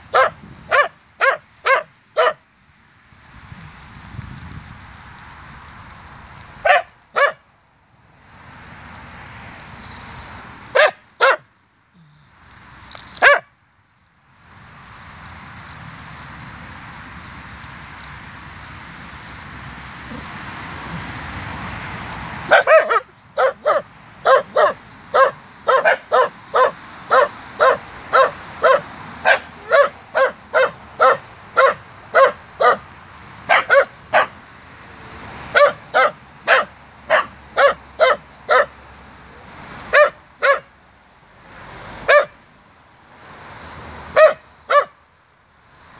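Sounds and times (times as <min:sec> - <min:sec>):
small dog barking: 0:00.1 - 0:02.4, 0:06.6 - 0:07.4, 0:10.7 - 0:11.4, 0:13.2 - 0:13.5, 0:22.5 - 0:32.8, 0:33.5 - 0:34.4, 0:35.5 - 0:38.7, 0:39.9 - 0:40.7, 0:42.0 - 0:42.4, 0:44.1 - 0:45.0.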